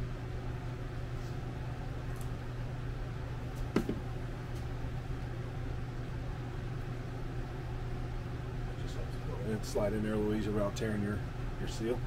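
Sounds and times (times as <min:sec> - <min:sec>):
machinery hum: 0:00.0 - 0:12.0.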